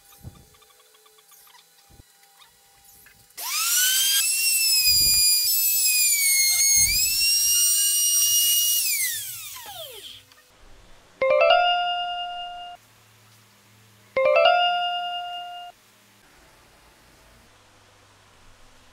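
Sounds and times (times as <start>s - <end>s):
router motor whining: 0.0s - 10.4s.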